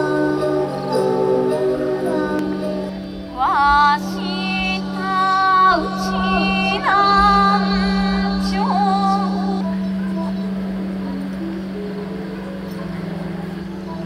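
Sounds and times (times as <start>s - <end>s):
woman singing into microphone: 0.0s - 11.2s
low drone: 0.0s - 14.0s.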